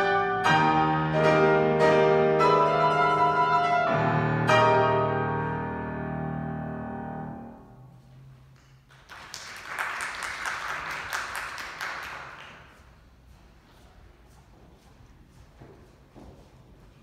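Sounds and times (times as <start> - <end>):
applause: 8.6 - 13.0.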